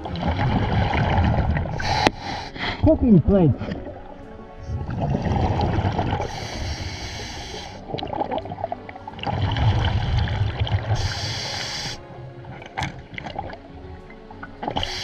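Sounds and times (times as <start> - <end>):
exhaled bubbles gurgling: 0.0 - 2.2, 3.3 - 15.0
regulator inhale hiss: 1.8 - 2.8, 6.2 - 7.9, 11.0 - 12.1, 14.8 - 15.0.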